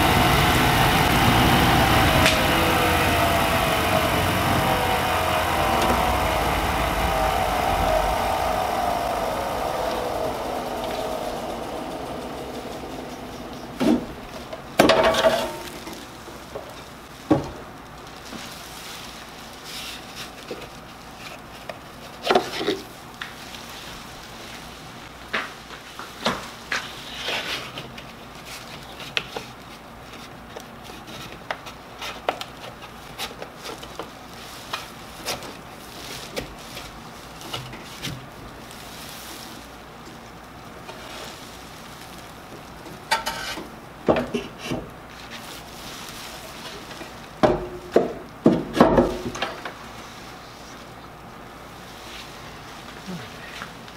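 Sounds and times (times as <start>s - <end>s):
plastic sheet rustling: 4.8s - 47.4s.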